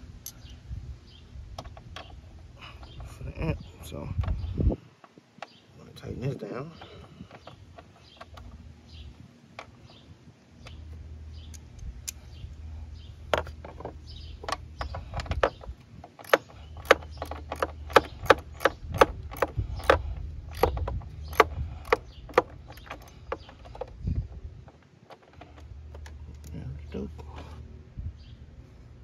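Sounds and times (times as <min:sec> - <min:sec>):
socket ratchet clicking: 0:13.4 - 0:24.0.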